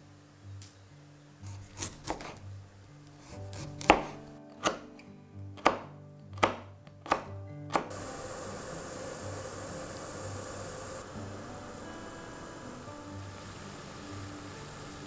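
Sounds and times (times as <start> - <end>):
knife chopping on wooden board: 1.5 - 2.4, 3.2 - 5.0, 5.6 - 7.9.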